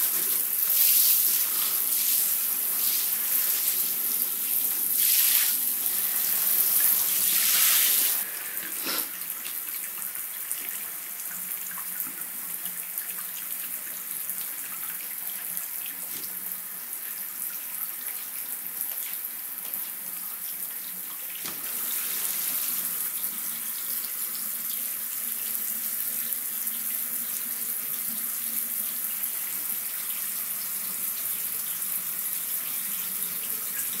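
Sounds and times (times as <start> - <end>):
shower water splashing into bathtub: 0.0 - 16.5, 17.1 - 34.0.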